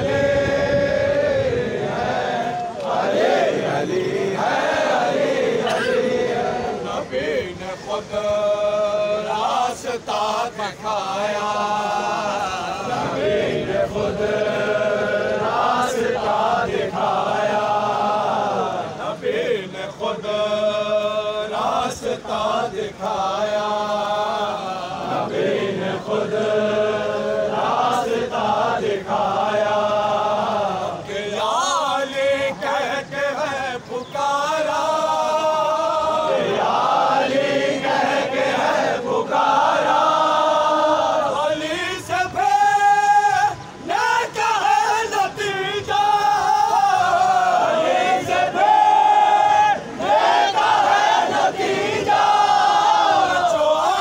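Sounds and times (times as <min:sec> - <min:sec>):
men chanting in unison: 0:00.0 - 0:54.0.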